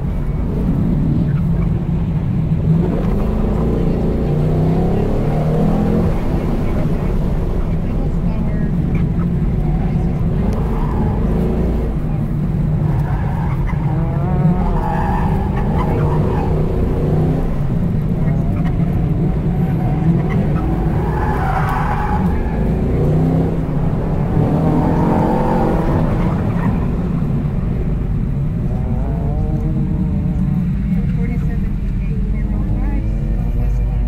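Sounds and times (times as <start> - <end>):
car engine revving: 0.0 - 34.0.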